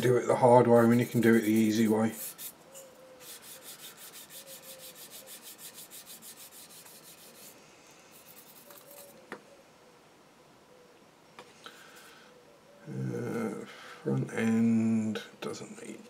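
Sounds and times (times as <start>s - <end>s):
sanding stick rubbing plastic: 0.8s - 2.6s, 3.2s - 9.2s.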